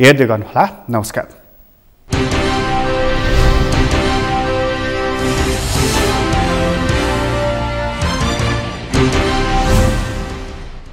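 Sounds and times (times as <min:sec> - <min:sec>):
news theme music: 0:02.1 - 0:10.9.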